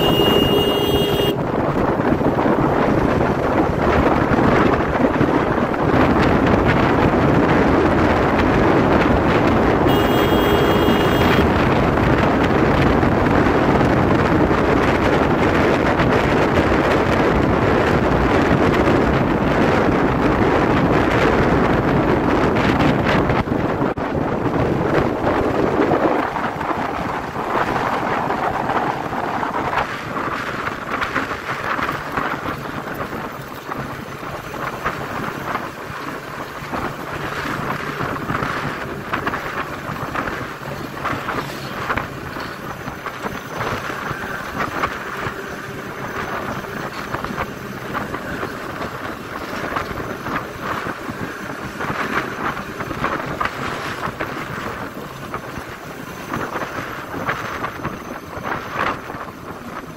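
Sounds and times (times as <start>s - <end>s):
motorcycle engine running: 0.0s - 15.6s
wind buffeting microphone: 0.0s - 59.9s.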